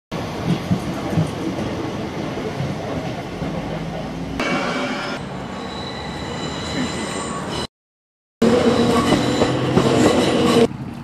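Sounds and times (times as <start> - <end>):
train wheels rumbling on rails: 0.2 - 5.4, 8.4 - 11.0
high ringing whine: 4.4 - 7.7.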